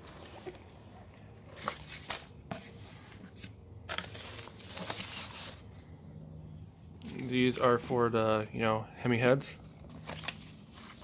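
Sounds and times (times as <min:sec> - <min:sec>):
packing paper rustling: 0:00.0 - 0:05.7, 0:09.7 - 0:11.0
cardboard box being opened: 0:01.4 - 0:05.6.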